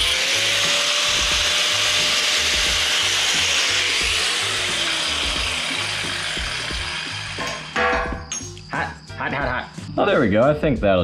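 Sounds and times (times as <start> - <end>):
angle grinder cutting steel: 0.0 - 8.0.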